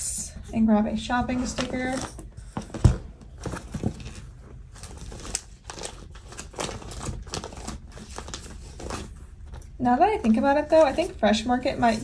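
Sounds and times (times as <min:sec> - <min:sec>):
paper crinkling: 0:01.6 - 0:12.0
stickers peeling clicks and rustles: 0:03.4 - 0:09.8.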